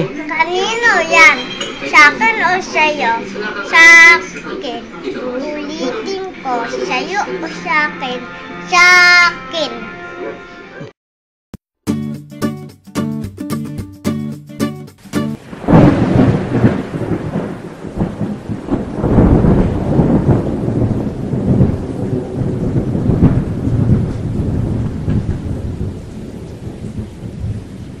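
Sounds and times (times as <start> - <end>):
steady rain: 15.0 - 28.0
rolling thunder: 15.4 - 28.0.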